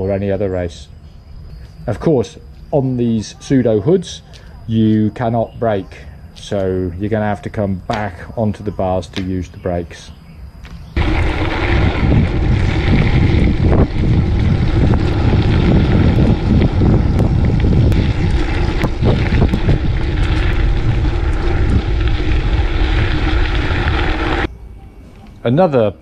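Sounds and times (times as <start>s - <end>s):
bike tyre rumble on dirt: 10.6s - 24.5s
wind buffeting microphone: 11.0s - 24.5s.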